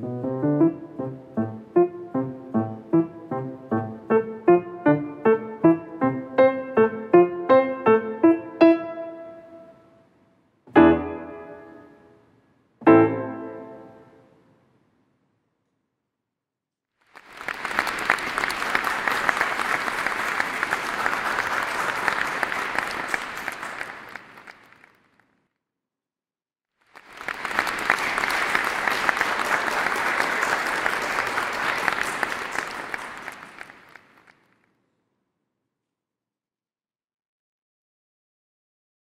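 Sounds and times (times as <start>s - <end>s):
audience applause: 17.0s - 25.2s, 26.8s - 34.5s.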